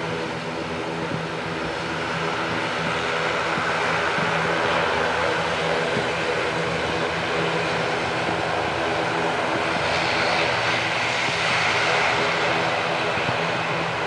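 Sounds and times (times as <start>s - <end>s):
turboprop engines droning: 0.0s - 14.0s.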